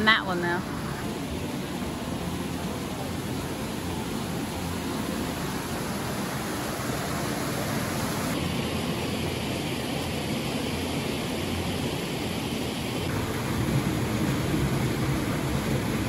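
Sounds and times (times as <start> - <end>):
stream rushing through gorge: 0.0 - 16.0.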